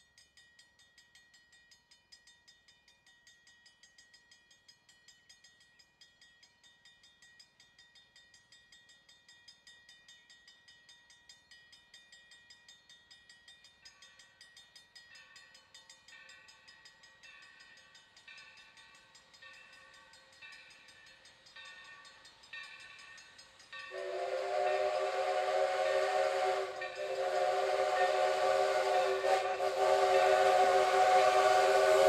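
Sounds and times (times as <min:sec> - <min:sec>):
railroad crossing bell ringing: 0:11.5 - 0:32.0
distant steam locomotive whistle: 0:23.9 - 0:32.0.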